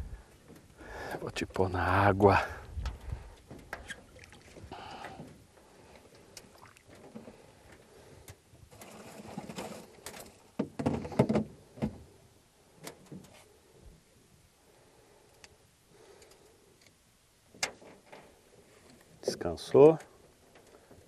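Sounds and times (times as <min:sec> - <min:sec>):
water sloshing and gurgling: 0:02.7 - 0:10.4.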